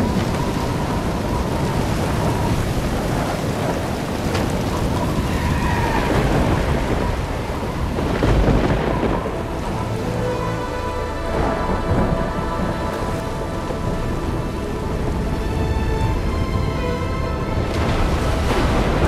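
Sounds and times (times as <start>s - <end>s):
heavy rain: 0.0s - 19.0s
thunder rumbling: 0.0s - 19.0s.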